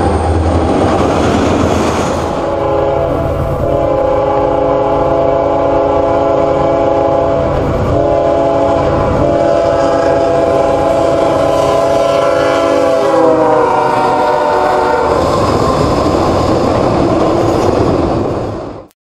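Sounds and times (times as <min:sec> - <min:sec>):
train rumble: 0:00.0 - 0:18.9
locomotive air horn blasts: 0:02.4 - 0:15.2.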